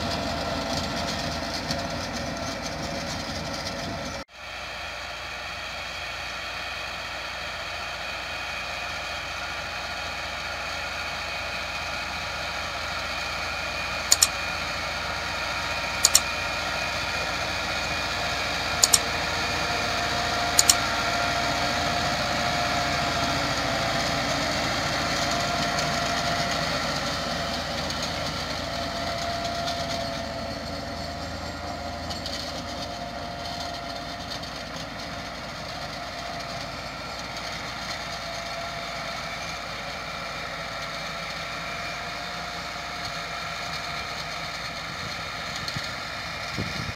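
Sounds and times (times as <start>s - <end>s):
rotavator working soil: 0.0s - 46.9s
tractor diesel engine running: 0.0s - 46.9s
sharp double clicks: 20.6s - 20.8s.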